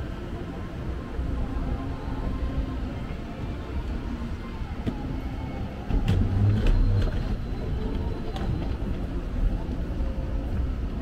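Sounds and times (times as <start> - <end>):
low city rumble: 0.0 - 11.0.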